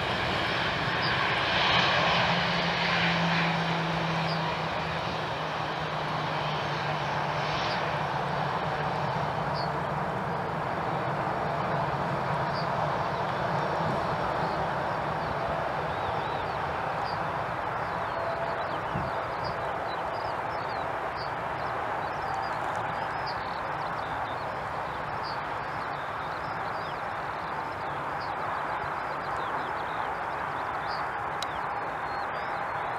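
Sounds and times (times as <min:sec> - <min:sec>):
jet engines running: 0:00.0 - 0:32.9
small birds chirping: 0:09.3 - 0:11.7, 0:14.2 - 0:32.9.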